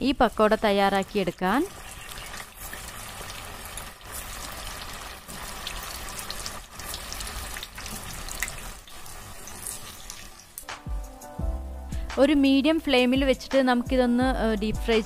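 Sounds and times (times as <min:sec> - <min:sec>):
batter deep-frying in hot oil: 0:00.0 - 0:10.8.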